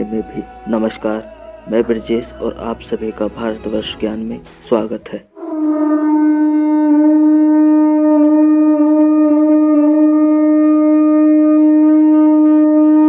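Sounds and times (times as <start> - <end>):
conch shell blown: 5.3 - 13.0.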